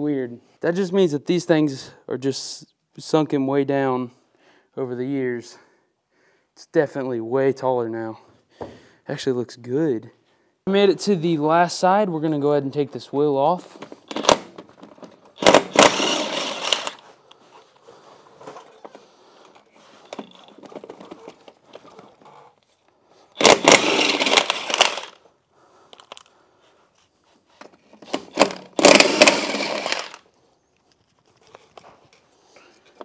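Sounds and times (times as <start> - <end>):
impact wrench hammering lug nuts: 15.4 - 17.0, 23.4 - 25.1, 28.3 - 30.2
faint clinks of handling: 25.9 - 28.0, 30.6 - 33.0.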